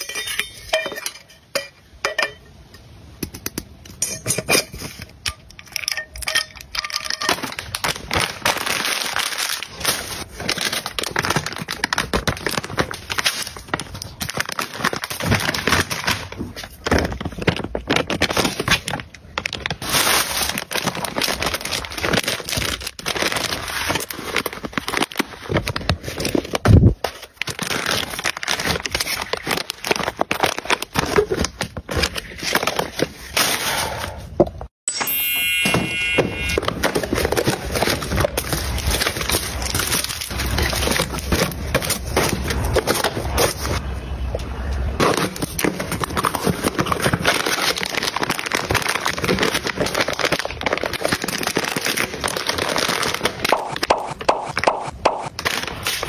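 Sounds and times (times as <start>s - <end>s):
plastic packaging crinkling: 4.9s - 33.6s, 36.5s - 43.9s, 44.7s - 56.0s.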